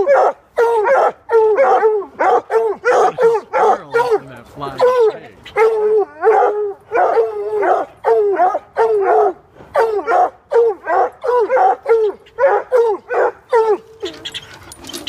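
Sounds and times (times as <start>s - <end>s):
hounds baying: 0.0s - 15.0s.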